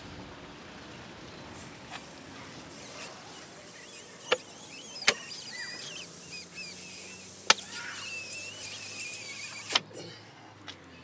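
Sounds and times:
high squeaky chirps: 2.2 - 9.8.

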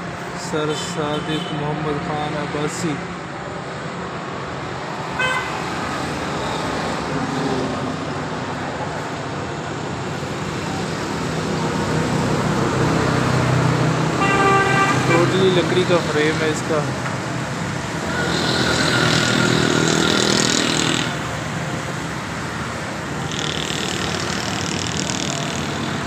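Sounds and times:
road traffic rumble: 0.0 - 26.0
car horn toot: 5.2 - 5.6, 14.2 - 15.2.

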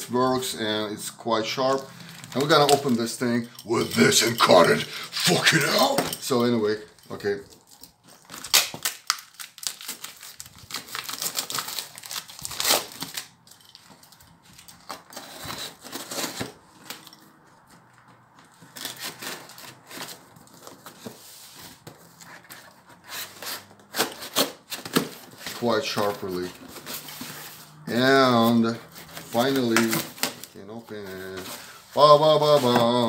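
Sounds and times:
cardboard and tape tearing: 7.6 - 13.3, 14.8 - 17.0, 18.6 - 21.6, 22.2 - 33.0.

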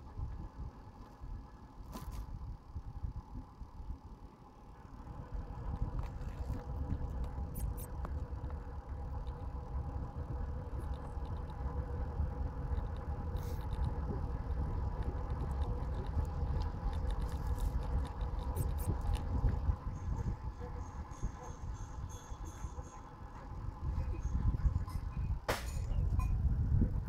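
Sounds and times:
faint steady whine: 0.0 - 27.0
wind rumbling on microphone: 0.0 - 27.0
road noise: 3.9 - 25.1.

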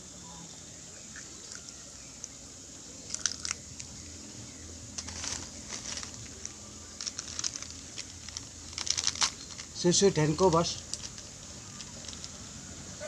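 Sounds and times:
plastic packaging crinkling: 3.0 - 3.9, 5.0 - 12.6.

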